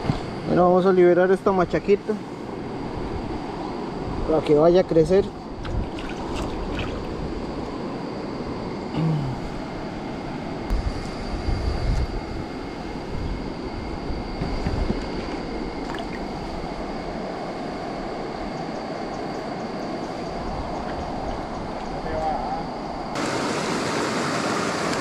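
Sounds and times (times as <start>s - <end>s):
river water rushing over rocks: 23.2s - 25.0s.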